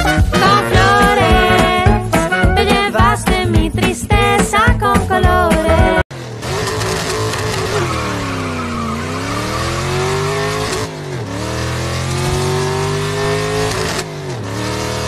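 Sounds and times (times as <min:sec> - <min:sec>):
racing car engine revving: 0:06.1 - 0:15.0.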